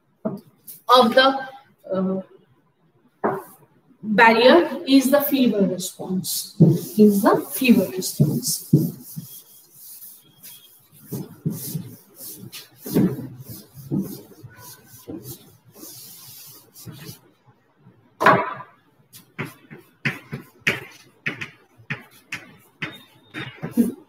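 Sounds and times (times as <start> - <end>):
duster wiping chalkboard: 6.2 - 17.3, 19.1 - 24.0.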